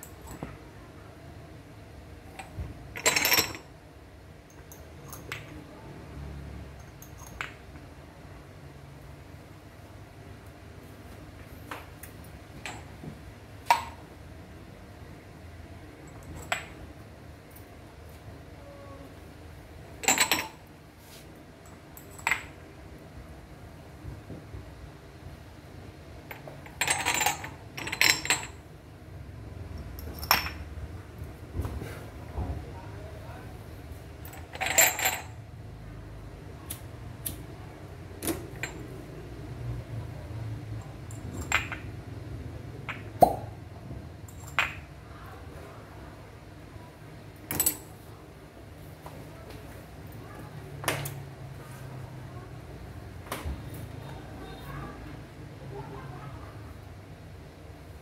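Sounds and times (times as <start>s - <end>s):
glass jars clinking: 3.0s - 3.7s, 26.7s - 28.6s, 34.3s - 35.4s.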